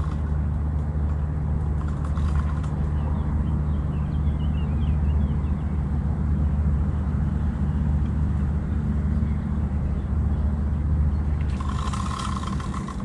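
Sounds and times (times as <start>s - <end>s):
fishing reel drag buzzing: 0.0s - 0.4s, 1.8s - 2.9s, 11.4s - 13.0s
low motor drone: 0.0s - 13.0s.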